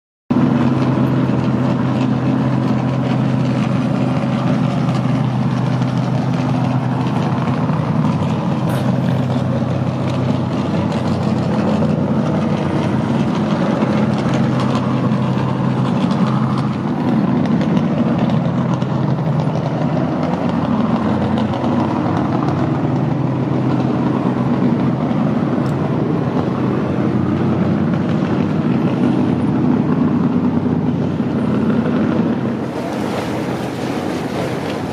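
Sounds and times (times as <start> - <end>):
motorboat engine running: 0.3 - 34.9.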